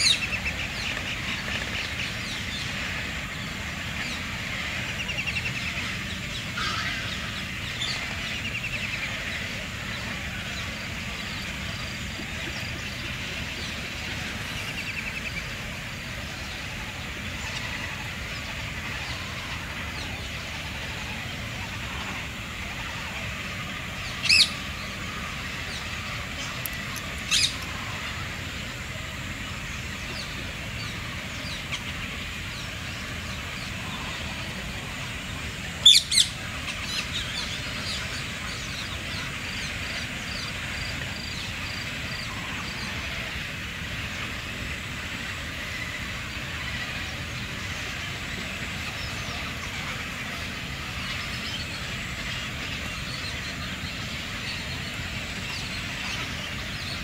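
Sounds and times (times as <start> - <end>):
birds chattering with trills: 0.0 - 57.0
sharp loud bird calls: 17.0 - 28.2, 35.6 - 43.4.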